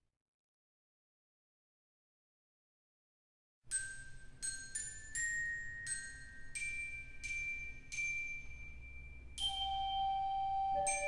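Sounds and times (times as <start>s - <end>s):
organ bell tones melody: 8.8s - 11.0s.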